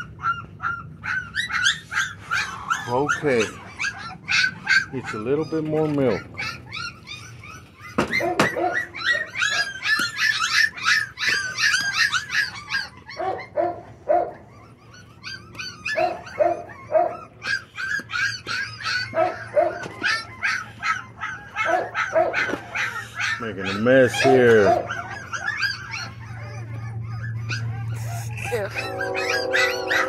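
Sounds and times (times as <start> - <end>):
puppies whining and yipping: 0.0 - 30.0.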